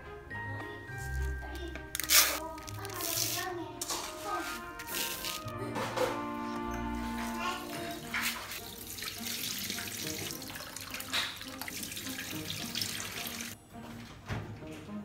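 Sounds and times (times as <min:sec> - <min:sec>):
tap water splashing in sink: 0:07.7 - 0:13.6.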